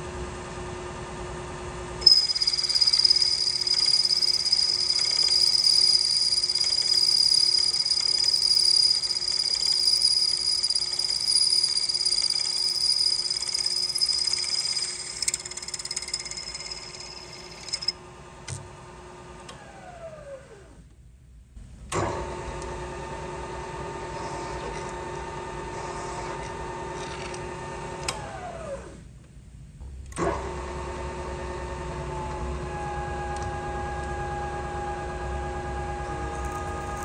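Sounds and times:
drill cutting into metal: 2.0 - 17.9
milling machine spindle running: 2.0 - 17.9.

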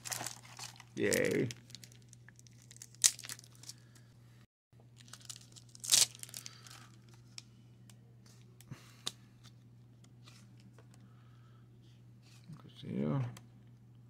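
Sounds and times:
foil pack tearing and crinkling: 0.0 - 3.8, 5.0 - 7.0.

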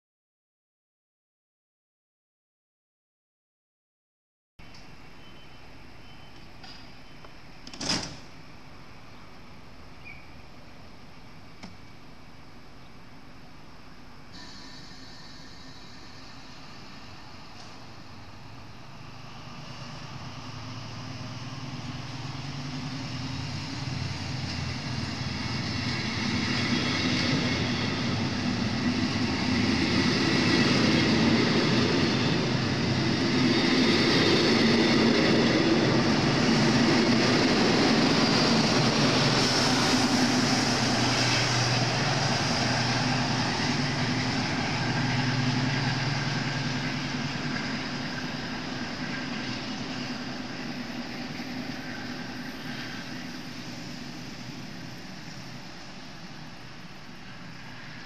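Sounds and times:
train coaches rolling: 14.4 - 58.0
locomotive engine under power: 34.5 - 55.4.

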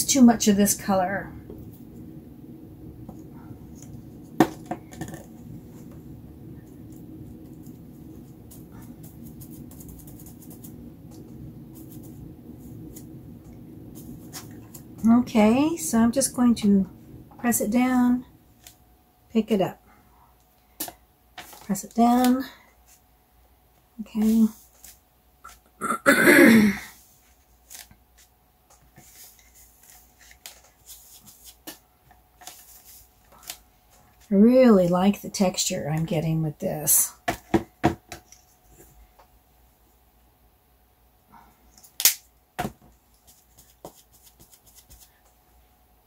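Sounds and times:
low steady hum: 0.0 - 46.0
sponge dabbing canvas: 8.0 - 13.1, 43.1 - 45.2
person clearing throat: 25.8 - 26.9.

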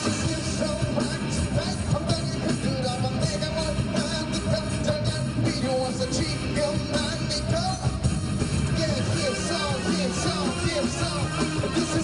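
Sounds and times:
live rock band playing: 0.0 - 12.0
man singing: 0.0 - 12.0.

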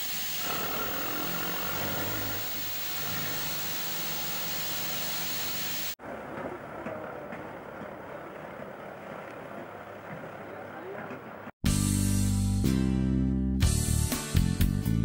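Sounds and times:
diesel engine running with hiss: 0.0 - 6.0
duller engine moving along track: 0.0 - 11.5.

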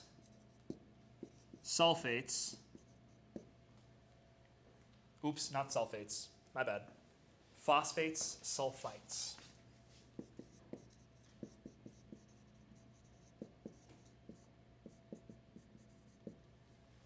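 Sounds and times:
marker writing on whiteboard: 0.0 - 3.6, 9.1 - 16.5.

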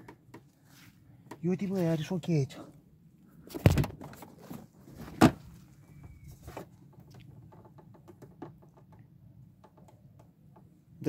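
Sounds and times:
scooter seat thumping shut: 3.5 - 4.2, 5.1 - 5.5.

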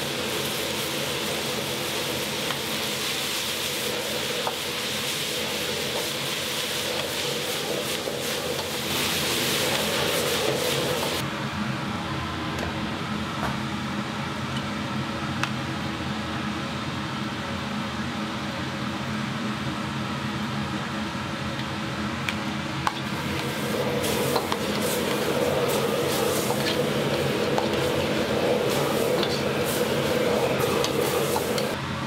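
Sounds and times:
loud hiss: 0.0 - 11.2, 23.1 - 31.8
kitchen exhaust fan humming: 0.0 - 32.0.

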